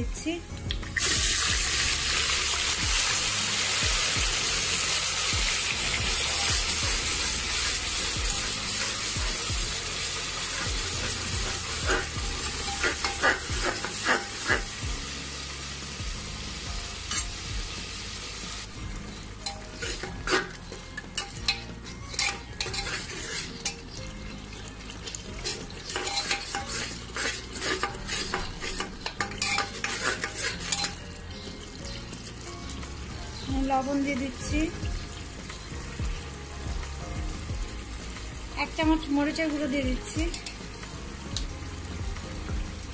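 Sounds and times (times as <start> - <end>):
onion paste sizzling in oil: 0.8 - 42.9
utensil scraping metal pot: 4.8 - 14.8, 19.4 - 32.3.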